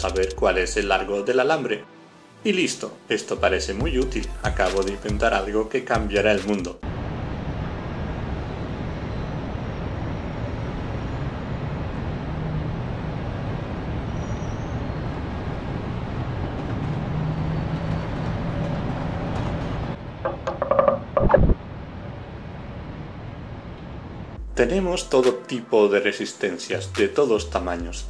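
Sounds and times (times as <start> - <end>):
ambient rumbling drone: 19.9 - 24.9.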